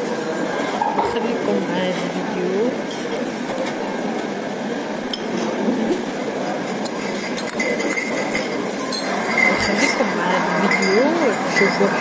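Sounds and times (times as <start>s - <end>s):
background chatter: 0.0s - 12.0s
dishes and cutlery clinking: 5.1s - 6.0s, 6.6s - 12.0s.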